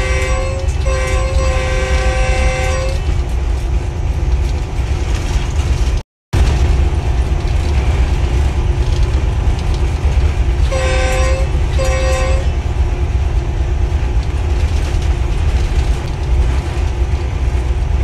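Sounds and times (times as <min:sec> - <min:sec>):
train horn blasts: 0:00.0 - 0:03.2, 0:10.6 - 0:12.6
locomotive engine rumble: 0:00.0 - 0:18.0.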